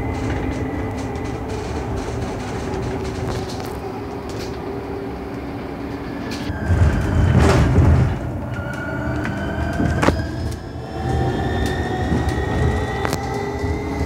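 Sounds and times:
bus cabin rumble and road noise: 0:00.0 - 0:14.0
electric drive whine: 0:00.0 - 0:14.0.

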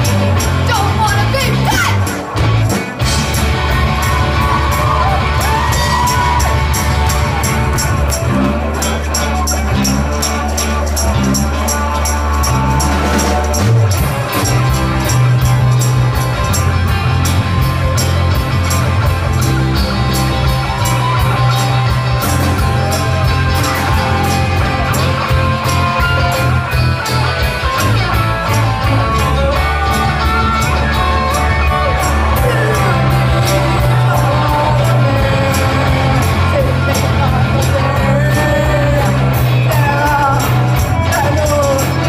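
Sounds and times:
bass guitar: 0:00.0 - 0:42.0
drums with cymbal beat: 0:00.0 - 0:42.0
electric guitars: 0:00.0 - 0:42.0
people singing: 0:32.4 - 0:40.4.

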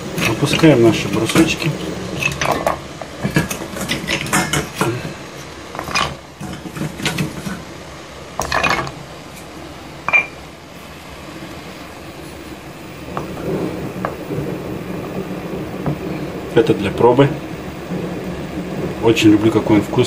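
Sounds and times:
ringing metal clink: 0:10.1 - 0:10.4
wood knocking against metal pot: 0:10.1 - 0:10.4.

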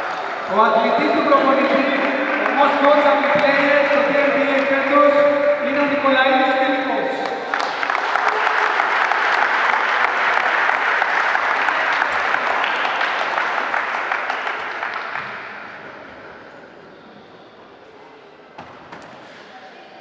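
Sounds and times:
crowd applauding: 0:00.0 - 0:15.9.

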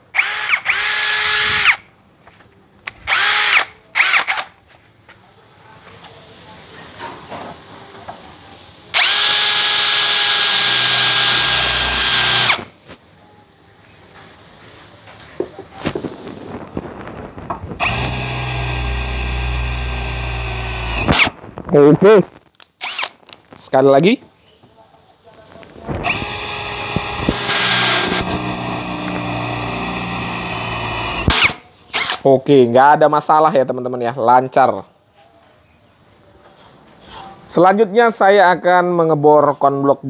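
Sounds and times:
drill bit cutting metal: 0:09.0 - 0:12.6, 0:17.8 - 0:21.3, 0:26.0 - 0:32.2
drill motor whine: 0:09.0 - 0:12.6, 0:17.8 - 0:21.3, 0:26.0 - 0:32.1
drill trigger blips: 0:09.0 - 0:12.7, 0:17.8 - 0:21.3, 0:26.0 - 0:32.2.

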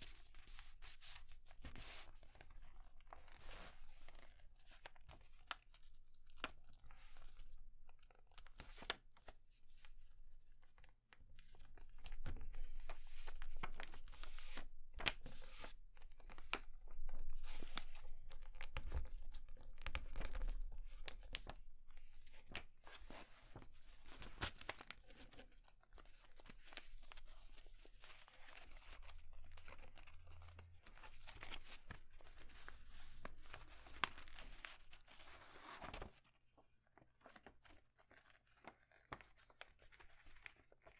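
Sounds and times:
paper rustling and crinkling: 0:11.4 - 0:40.9.

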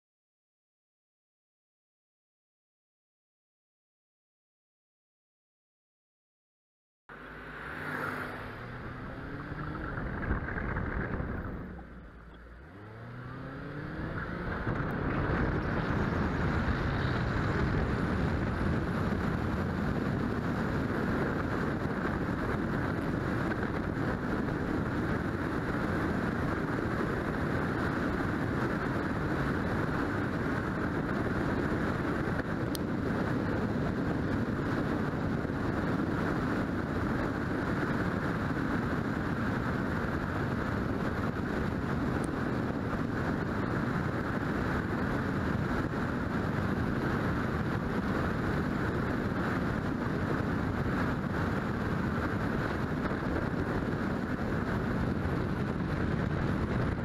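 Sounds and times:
car engine accelerating: 0:07.1 - 0:38.0
wind and tyre noise: 0:07.1 - 0:57.0.

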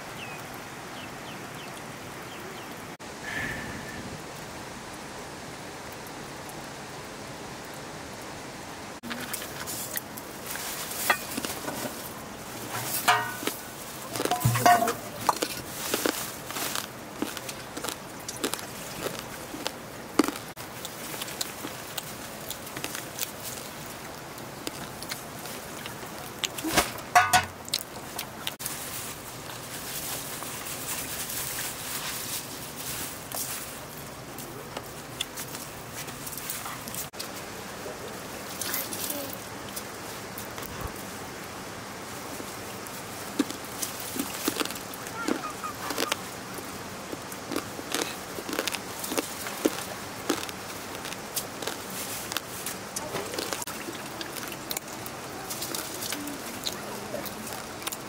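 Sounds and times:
background hiss: 0:00.0 - 0:58.0
rice washed in water: 0:09.1 - 0:40.2, 0:42.0 - 0:58.0
rice grains rustling in metal pot: 0:09.3 - 0:17.4
water dripping into bowl: 0:13.1 - 0:13.6, 0:14.2 - 0:15.5
water poured into pot: 0:14.3 - 0:15.2.

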